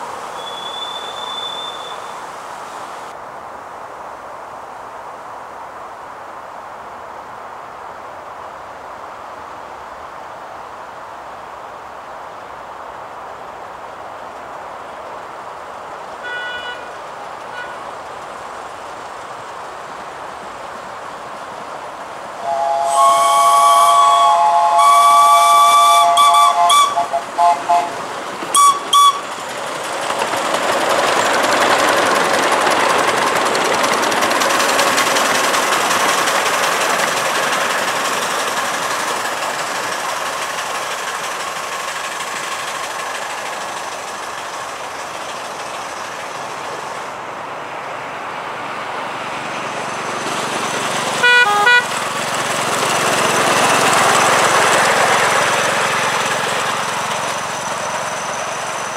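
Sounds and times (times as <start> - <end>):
steam locomotive chime whistle: 0.3 - 2.3, 22.4 - 29.3, 51.2 - 52.0
train wheels rattling and exhaust: 12.3 - 58.9.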